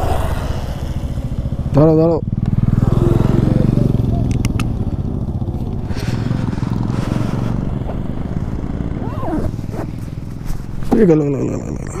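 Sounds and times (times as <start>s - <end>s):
motorcycle engine idling: 0.0s - 11.8s
sharp clicks: 4.2s - 4.8s.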